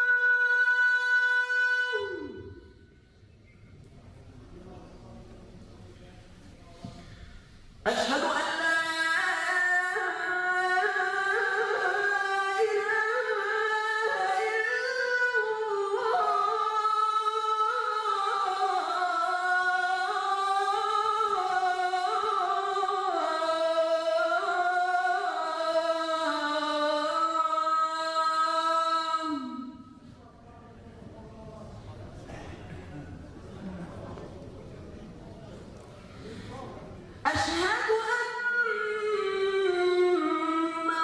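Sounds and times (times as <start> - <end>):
solo voice chanting call to prayer: 0.0 - 2.9.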